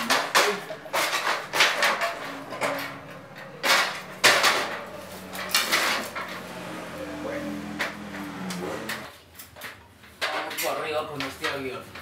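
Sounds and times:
metal stepladder scraping and knocking: 0:00.0 - 0:09.1.

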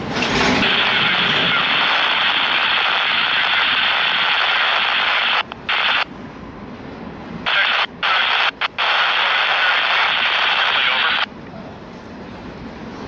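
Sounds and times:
passing train rumble: 0:00.0 - 0:03.8, 0:05.5 - 0:07.5, 0:11.2 - 0:13.0
radio scanner static hiss: 0:00.6 - 0:06.1, 0:07.4 - 0:11.3.

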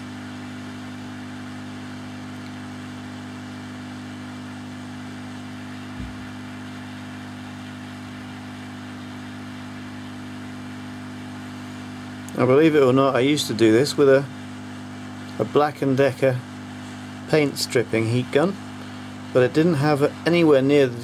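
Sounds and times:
hot air gun humming and hissing: 0:00.0 - 0:21.0
short knock: 0:05.9 - 0:06.3.

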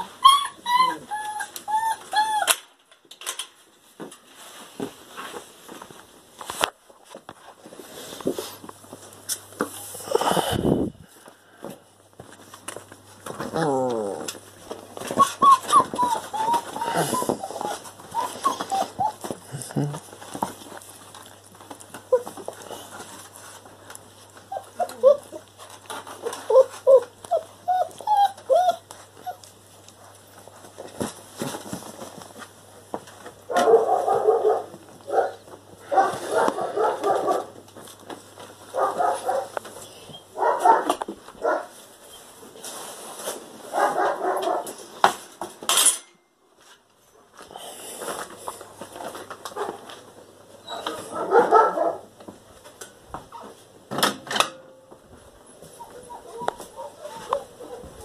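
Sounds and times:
dog whimpering: 0:00.0 - 0:02.6, 0:13.5 - 0:14.4, 0:15.0 - 0:20.0, 0:22.1 - 0:22.6, 0:24.5 - 0:25.5, 0:26.2 - 0:29.5, 0:50.6 - 0:51.2, 0:55.8 - 0:58.0.

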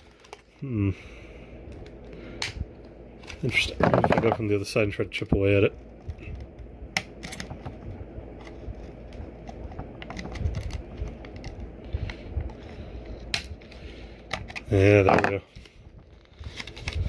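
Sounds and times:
plastic crinkling and clicking: 0:06.0 - 0:12.6, 0:13.2 - 0:17.0.

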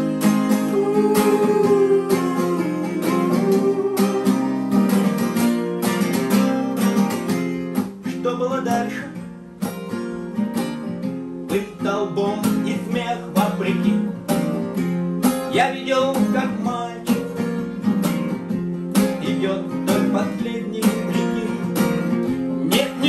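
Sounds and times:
acoustic guitars strummed and picked: 0:00.0 - 0:23.0
man singing: 0:00.5 - 0:05.0, 0:08.0 - 0:09.2, 0:11.5 - 0:14.2, 0:15.5 - 0:17.3, 0:19.1 - 0:23.0.

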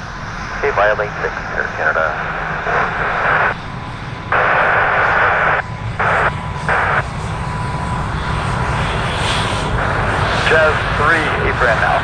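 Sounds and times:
jet engines rumbling: 0:00.0 - 0:12.0
radio static bursts: 0:00.6 - 0:03.6, 0:04.3 - 0:07.0.

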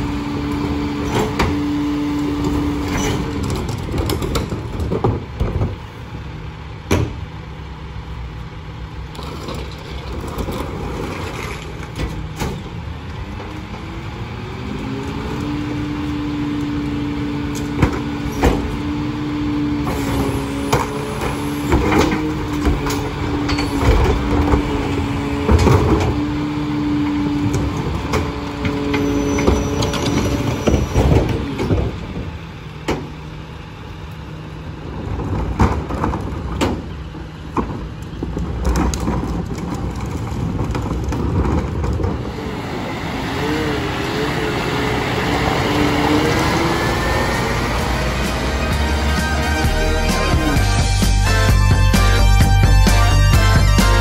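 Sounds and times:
garbage truck engine and packer: 0:00.0 - 0:54.0
trash banging into hopper: 0:19.8 - 0:26.4.

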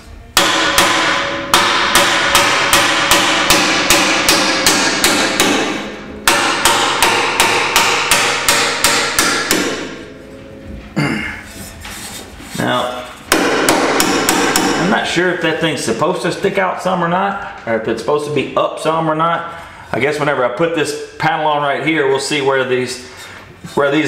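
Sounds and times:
hammer on ringing sheet metal: 0:00.4 - 0:10.2, 0:13.3 - 0:15.0.

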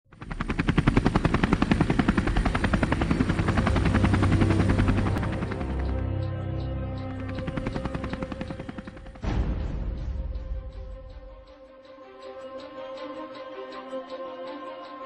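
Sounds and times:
helicopter rotor chop: 0:00.1 - 0:09.3.

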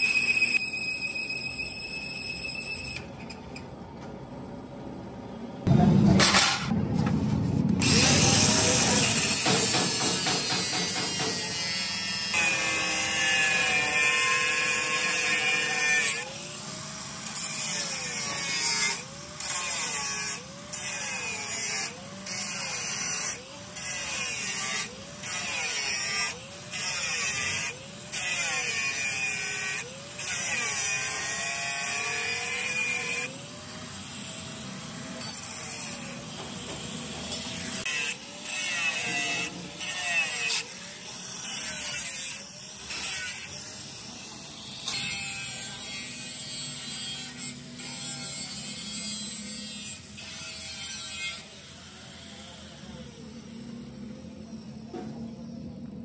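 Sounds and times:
angle grinder cutting steel: 0:00.0 - 0:03.0, 0:07.8 - 0:54.6.

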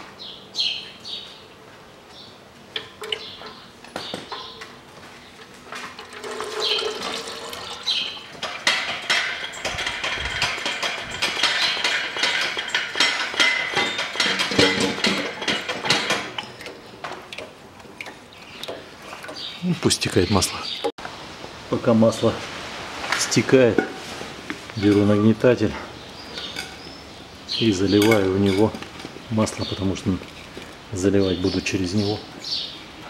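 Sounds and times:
drain plug clicks and clanks: 0:02.8 - 0:03.6, 0:08.4 - 0:18.8
oil pouring into metal basin: 0:05.8 - 0:08.7.

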